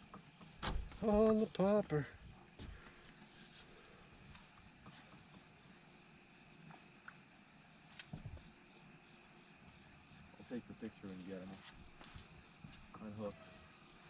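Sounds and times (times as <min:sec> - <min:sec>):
crickets chirring: 0:00.0 - 0:14.0.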